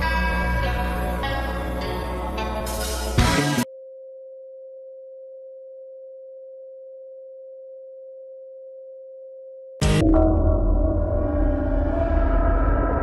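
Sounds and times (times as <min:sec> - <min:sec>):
background music: 0:00.0 - 0:03.7
steady electronic pure tone: 0:03.5 - 0:13.0.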